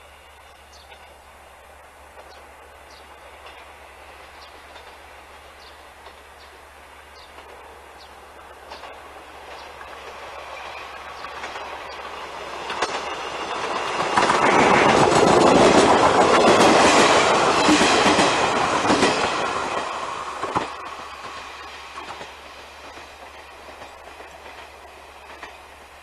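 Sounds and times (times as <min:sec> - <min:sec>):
diesel train passing: 0:00.0 - 0:26.0
wheels clacking over rail joints: 0:07.2 - 0:26.0.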